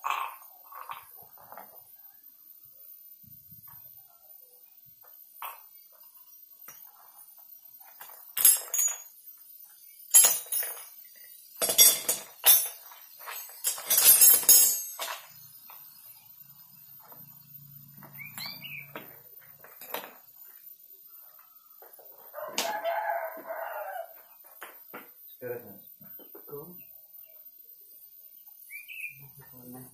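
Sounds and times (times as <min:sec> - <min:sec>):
metal tools clinking: 0:08.0 - 0:09.2, 0:10.1 - 0:15.8, 0:18.2 - 0:20.2.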